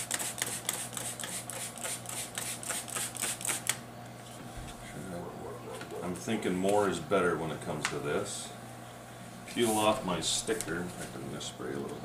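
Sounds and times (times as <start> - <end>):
trigger spray bottle hissing: 0.0 - 3.7.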